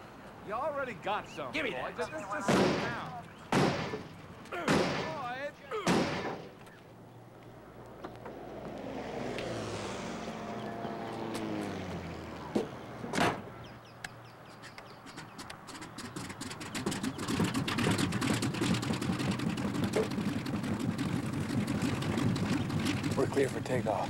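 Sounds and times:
propeller plane engine: 7.8 - 13.3, 15.1 - 24.0.

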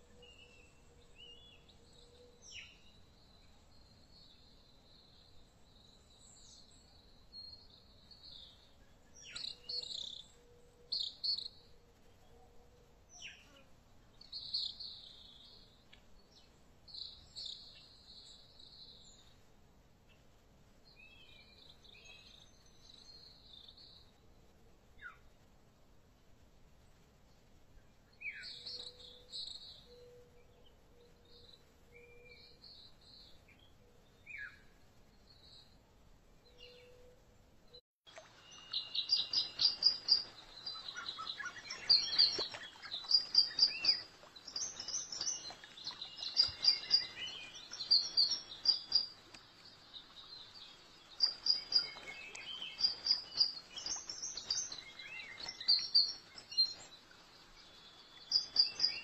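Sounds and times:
faint steady hiss: 0.0 - 59.0
birds chirping: 38.1 - 59.0.

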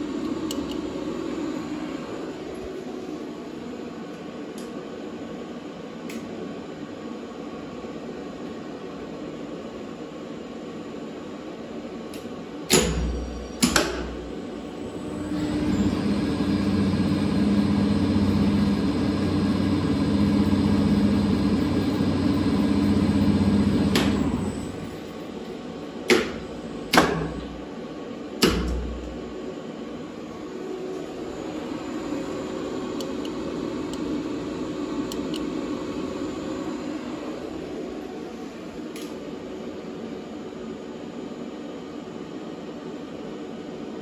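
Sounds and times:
electric motor and gearbox humming: 13.3 - 27.7, 30.2 - 38.7.

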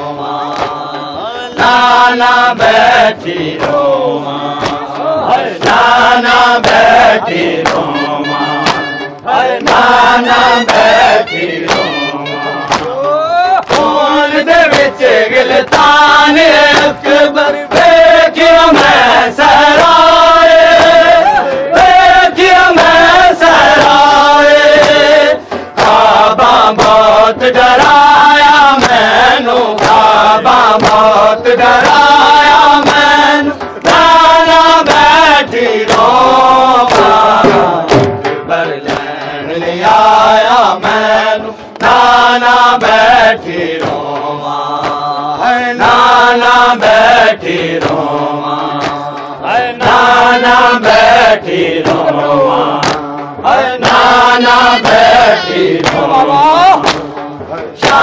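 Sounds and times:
men chanting a lament: 0.0 - 58.0.

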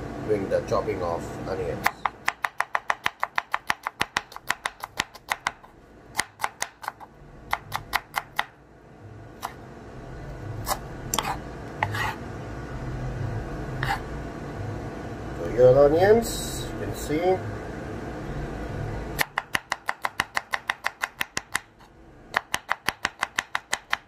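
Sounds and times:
knife chopping on wooden board: 1.8 - 8.5, 19.2 - 24.0.

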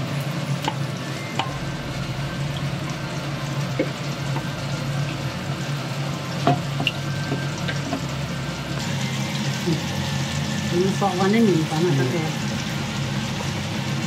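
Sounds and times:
oil sizzling and bubbling: 0.0 - 14.0
low steady hum: 1.0 - 11.8.

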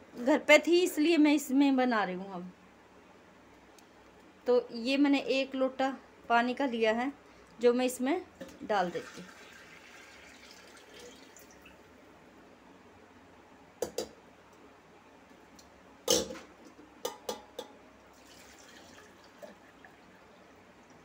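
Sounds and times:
water pouring into clay pot: 8.8 - 11.8, 18.1 - 20.2.

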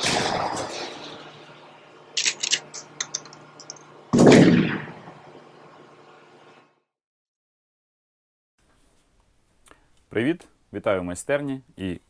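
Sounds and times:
gunshot-like blast: 0.0 - 0.8, 4.1 - 5.2.

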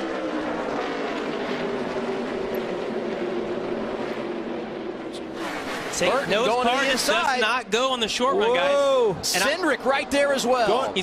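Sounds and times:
race car engines: 0.0 - 11.0.

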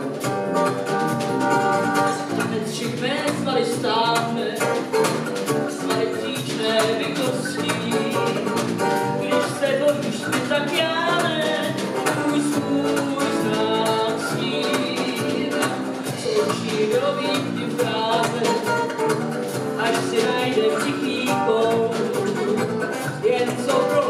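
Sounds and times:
drums: 0.0 - 24.0
electric bass guitar: 0.0 - 24.0
woman singing into microphone: 2.0 - 4.9, 5.7 - 18.9, 19.8 - 24.0.

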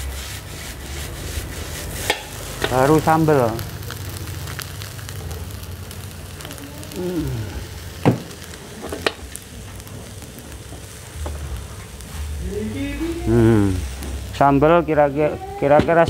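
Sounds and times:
metal spatula scraping wok: 0.0 - 3.1
rice sizzling in a wok: 0.0 - 16.0.

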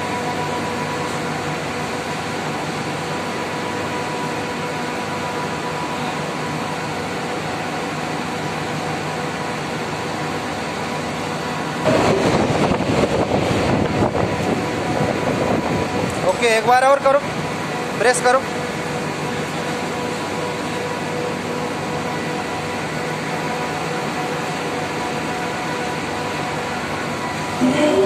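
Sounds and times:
chiller humming: 0.0 - 28.0
fan motor rushing noise: 0.0 - 28.0.

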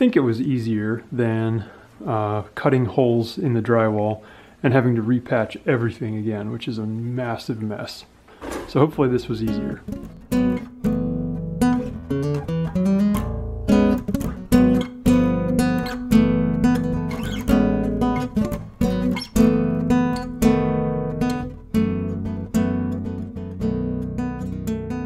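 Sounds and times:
acoustic guitar music: 8.4 - 25.0.

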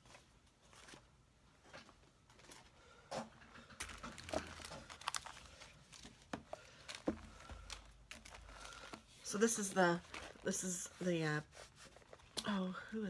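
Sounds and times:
paper and plastic rustling: 0.0 - 2.8, 3.4 - 12.8.

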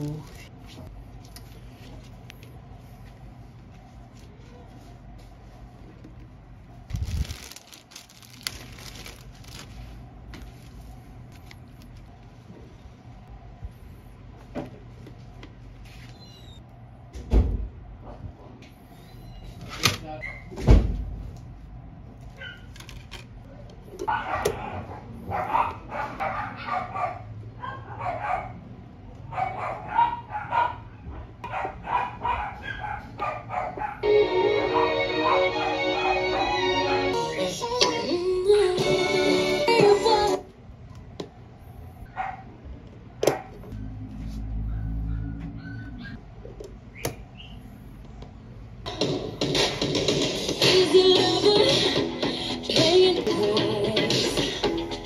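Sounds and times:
plastic bag crinkling: 6.8 - 12.1
dogs barking: 24.0 - 34.1, 34.7 - 36.9, 42.1 - 42.6, 43.2 - 43.7, 44.6 - 46.2.

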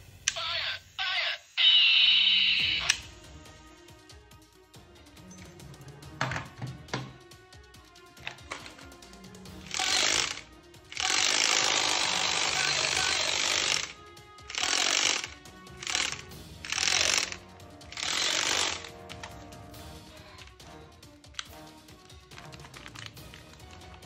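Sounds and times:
toy gun rattling and whirring: 8.2 - 9.0, 9.6 - 19.4, 21.3 - 24.0.

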